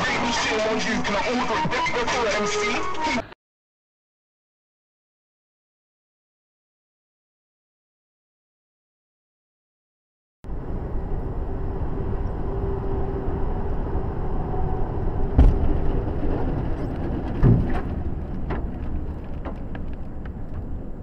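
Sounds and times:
vehicle engine and road noise: 0:10.5 - 0:21.0
loud collision bang: 0:15.4 - 0:15.9.

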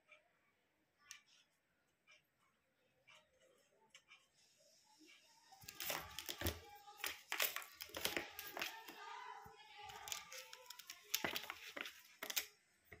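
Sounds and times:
plastic toys clicking and knocking: 0:05.6 - 0:13.0.

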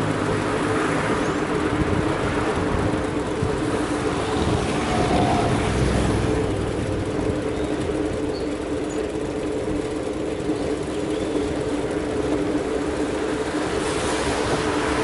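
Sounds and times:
car passing: 0:00.0 - 0:07.2, 0:13.3 - 0:15.0
road and wind noise: 0:00.0 - 0:15.0
steady engine hum: 0:00.0 - 0:15.0.

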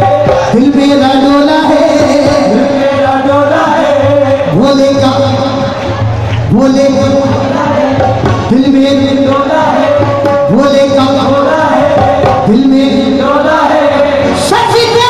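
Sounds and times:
devotional singing melody: 0:00.0 - 0:15.0
tabla: 0:00.0 - 0:15.0.

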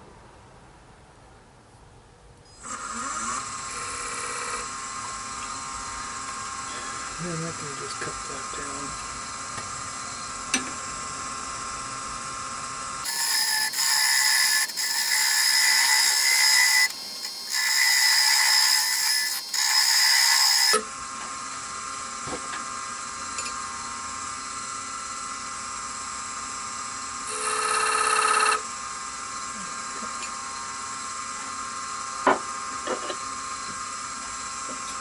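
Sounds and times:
wood lathe humming: 0:02.6 - 0:25.7
turning tool hissing cut: 0:04.6 - 0:10.4, 0:13.0 - 0:21.7.

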